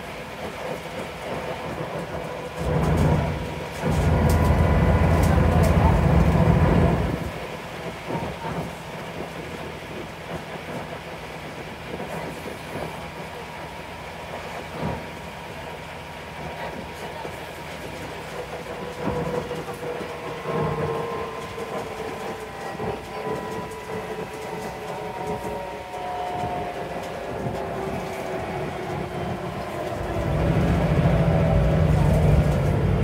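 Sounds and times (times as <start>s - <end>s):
bus engine running: 0.0s - 33.0s
road noise: 0.0s - 33.0s.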